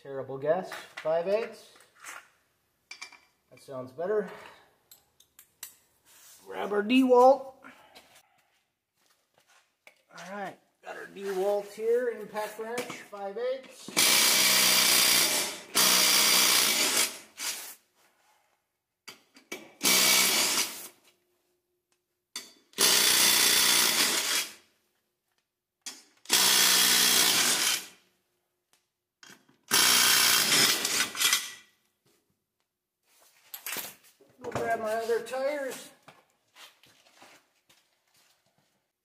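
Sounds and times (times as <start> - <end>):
impact wrench running: 13.9 - 17.6, 19.8 - 20.9, 22.8 - 24.6, 26.3 - 28.0, 29.7 - 31.6.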